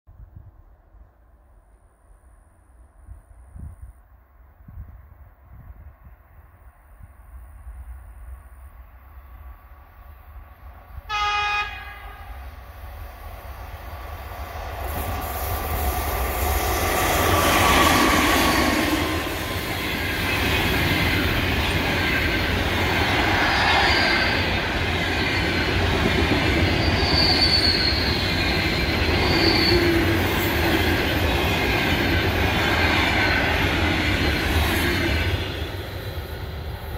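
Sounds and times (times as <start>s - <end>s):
locomotive horn blast: 11.1s - 12.4s
train wheels rolling: 12.4s - 36.9s
high-pitched wheel squeals: 26.6s - 30.6s.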